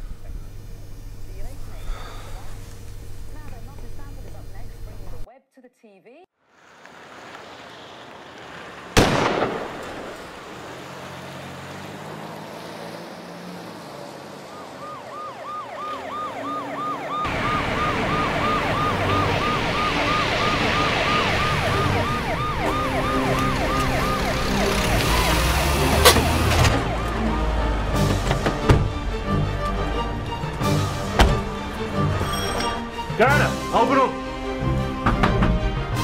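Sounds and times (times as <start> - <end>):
vehicle and road noise: 6.3 - 36.0
pistol shot: 9.0 - 10.2
siren yelping: 14.4 - 28.1.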